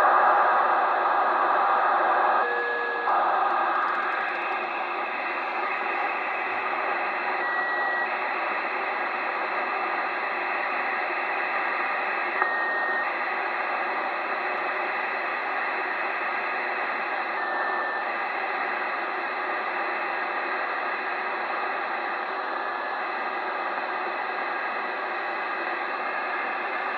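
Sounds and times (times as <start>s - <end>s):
radio receiver hiss: 0.0s - 26.9s
short radio tones: 0.0s - 26.9s.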